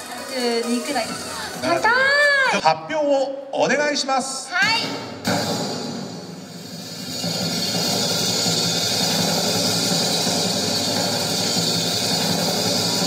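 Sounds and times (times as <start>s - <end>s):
drum roll over loudspeaker: 4.5s - 13.0s.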